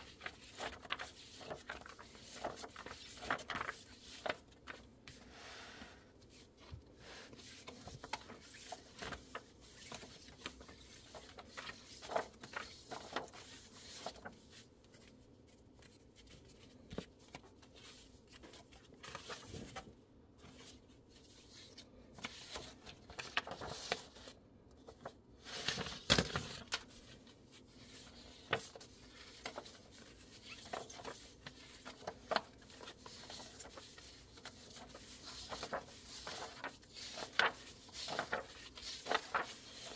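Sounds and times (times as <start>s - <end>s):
page flapping: 0.0s - 4.8s, 7.6s - 15.1s, 22.2s - 24.3s, 24.9s - 27.1s, 27.9s - 39.9s
paper sheets rustling: 0.0s - 5.3s, 6.2s - 39.9s.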